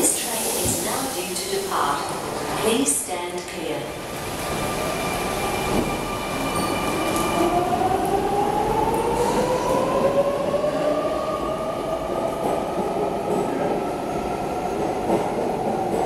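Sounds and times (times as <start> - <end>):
train wheels on rails: 4.4 - 11.3, 12.0 - 16.0.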